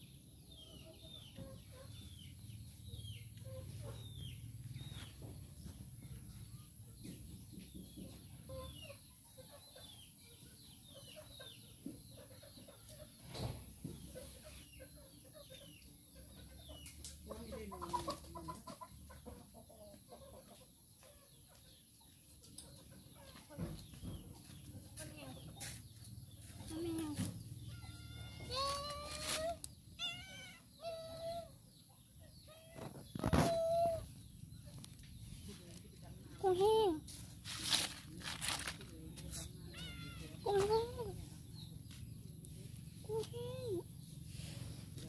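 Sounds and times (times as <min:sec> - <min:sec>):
chickens clucking: 0:00.6 - 0:45.0.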